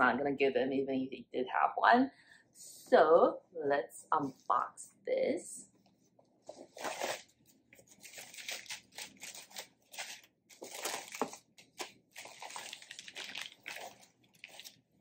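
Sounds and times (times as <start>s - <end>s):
tissue paper rustling: 6.5s - 14.8s.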